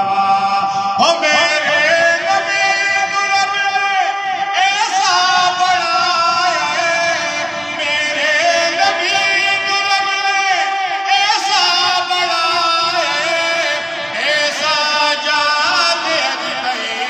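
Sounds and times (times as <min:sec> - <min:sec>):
man singing unaccompanied: 0:00.0 - 0:17.0.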